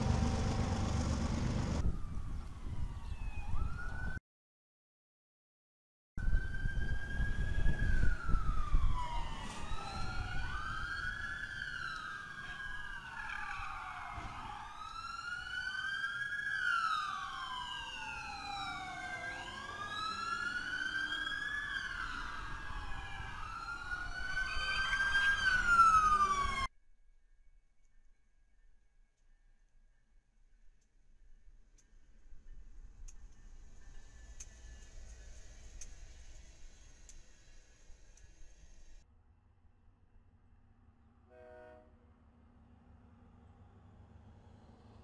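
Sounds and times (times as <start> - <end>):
low rumble of vehicles: 0.0 - 4.2, 6.2 - 26.7, 29.2 - 45.0
police sirens wailing: 0.0 - 4.2, 6.2 - 26.7.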